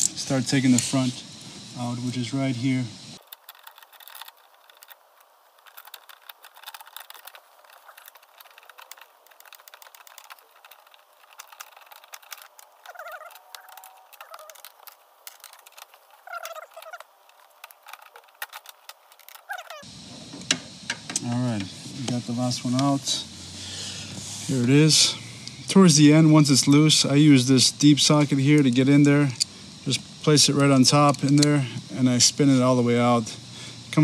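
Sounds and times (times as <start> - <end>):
ratchet wrench clicking: 3.2 - 19.9.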